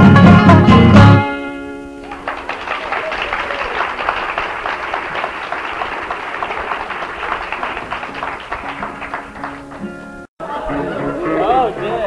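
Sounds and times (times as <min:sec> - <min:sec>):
audience applauding: 0:02.0 - 0:10.3.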